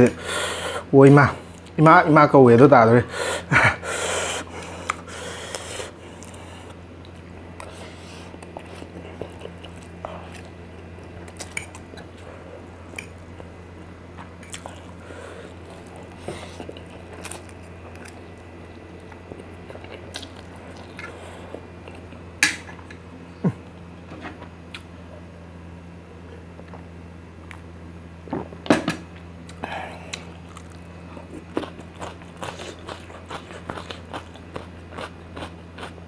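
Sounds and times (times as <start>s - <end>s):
steady low hum: 0.0s - 36.0s
person chewing noodles: 3.4s - 22.9s, 29.4s - 36.0s.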